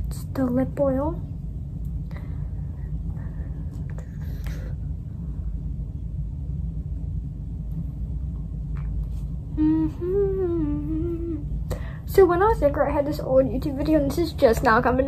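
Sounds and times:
low rumble: 0:00.0 - 0:15.0
woman humming a tune: 0:09.5 - 0:11.6.

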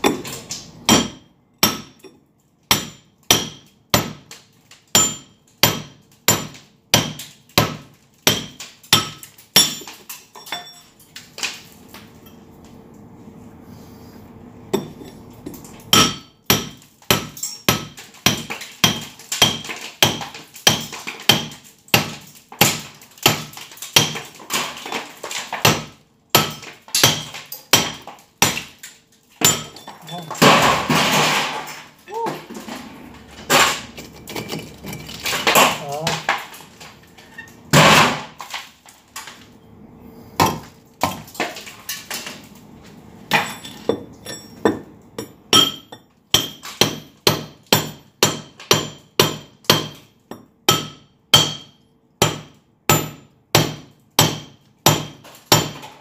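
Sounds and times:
hammer striking steel chisel: 0:00.9 - 0:04.3, 0:04.9 - 0:10.0, 0:15.9 - 0:24.2, 0:25.6 - 0:28.7, 0:29.4 - 0:29.8, 0:43.3 - 0:55.9.

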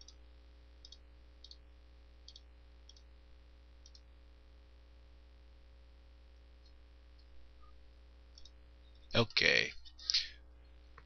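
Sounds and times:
steady low hum: 0:00.0 - 0:11.0
computer mouse clicks: 0:00.8 - 0:01.6, 0:02.2 - 0:03.1, 0:03.8 - 0:04.1, 0:08.3 - 0:09.1.

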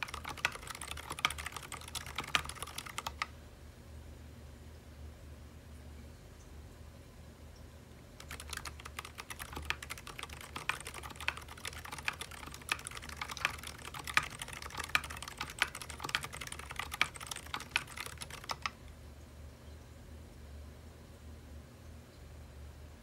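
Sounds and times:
soft mechanical keyboard typing: 0:00.0 - 0:03.3, 0:08.2 - 0:18.8.

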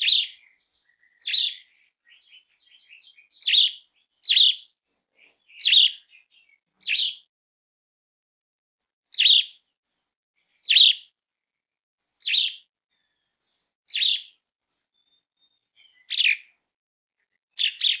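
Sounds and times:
starling harsh calls: 0:05.2 - 0:06.2, 0:06.8 - 0:07.3, 0:09.1 - 0:09.5, 0:16.1 - 0:16.5.

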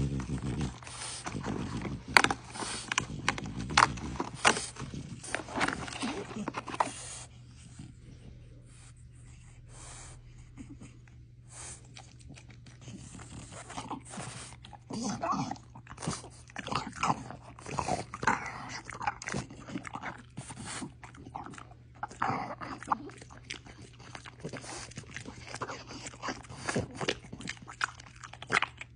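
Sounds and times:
dog chewing a treat: 0:00.0 - 0:07.9, 0:11.6 - 0:28.9.

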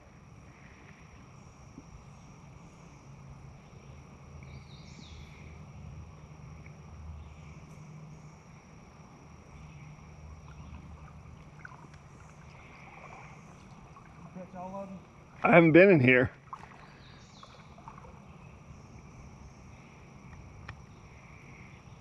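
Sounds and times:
faint high-pitched whine: 0:00.0 - 0:22.0
bird chirp: 0:03.6 - 0:05.5, 0:16.6 - 0:20.0.

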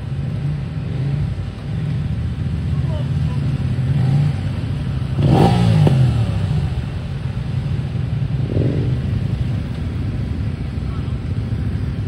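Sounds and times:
motorcycle engines running: 0:00.0 - 0:12.0
motorcycle revving hard: 0:03.2 - 0:07.2, 0:08.3 - 0:09.4.

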